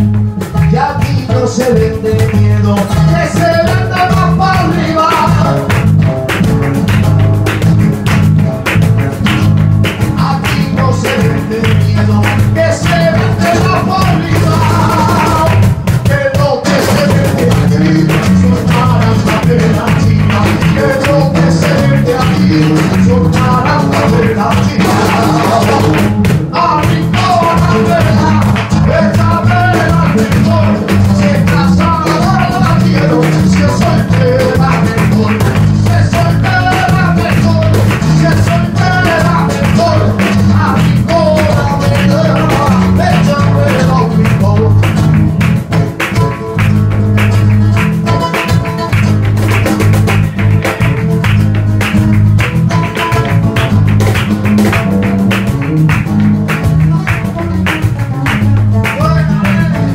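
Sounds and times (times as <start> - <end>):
box drum beating: 0.0 - 59.9
guitar playing: 0.0 - 59.9
rhythmic handclaps: 0.0 - 59.9
man singing: 0.4 - 6.1, 10.0 - 45.2, 58.7 - 59.9.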